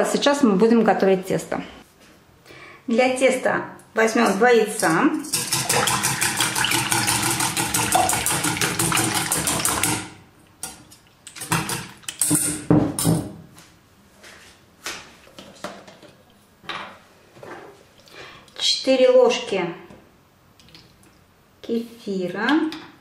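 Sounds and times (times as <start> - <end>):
whisk beating eggs in metal bowl: 5.3 - 10.1.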